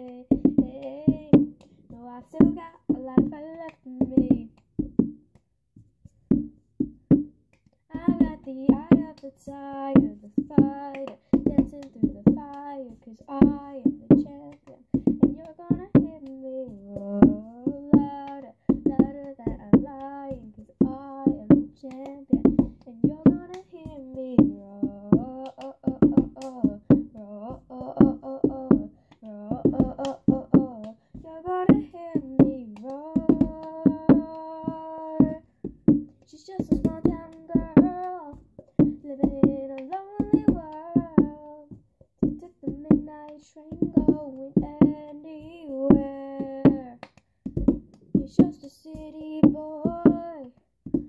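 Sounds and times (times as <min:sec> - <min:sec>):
girl singing: 0:00.0 - 0:04.6, 0:07.9 - 0:35.5, 0:36.2 - 0:47.1, 0:48.1 - 0:51.0
hand claps: 0:00.0 - 0:05.5, 0:06.3 - 0:51.0
plastic cup knocked on book: 0:46.7 - 0:48.6.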